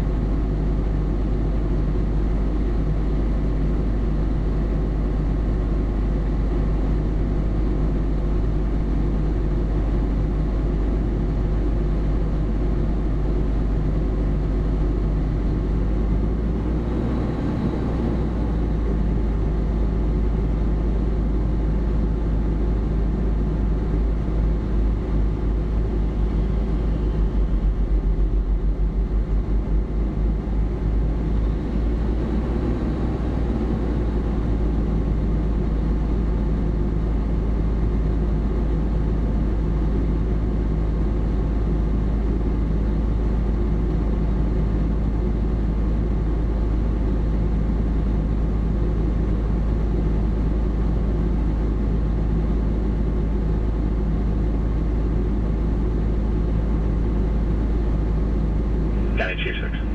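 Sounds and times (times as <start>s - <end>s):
truck engine idling: 17.5s - 32.4s, 57.4s - 59.9s.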